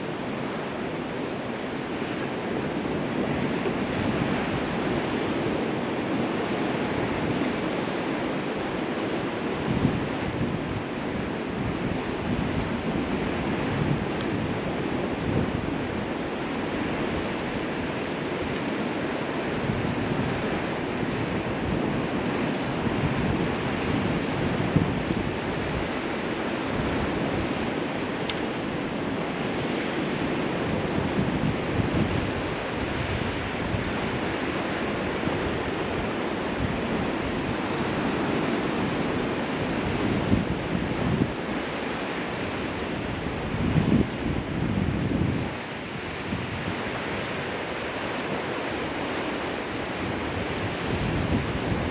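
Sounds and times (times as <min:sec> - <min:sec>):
wind buffeting microphone: 0:09.5 - 0:51.9
sea washing: 0:25.3 - 0:40.0.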